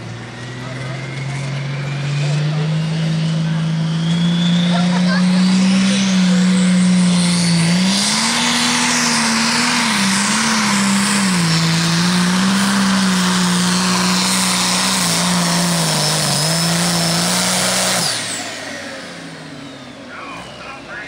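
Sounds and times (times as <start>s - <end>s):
diesel engine under load: 0.0s - 21.0s.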